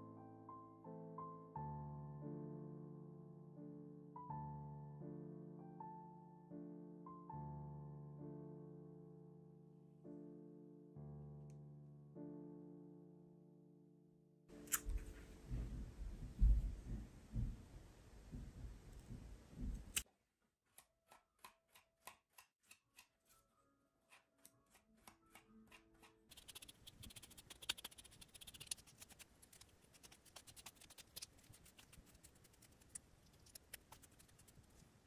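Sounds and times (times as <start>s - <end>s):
scissors snipping cord: 20.7s - 23.4s, 24.1s - 34.9s
comb scratching through cord: 26.3s - 35.0s.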